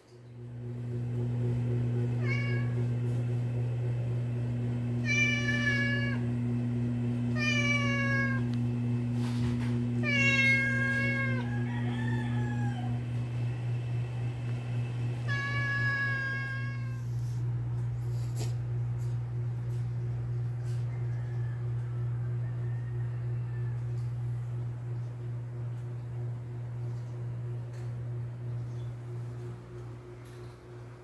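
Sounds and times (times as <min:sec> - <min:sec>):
steady low hum: 0:00.0 - 0:31.0
cats meowing: 0:02.2 - 0:02.9, 0:05.0 - 0:06.3, 0:07.3 - 0:08.6, 0:10.0 - 0:11.6, 0:15.2 - 0:17.1.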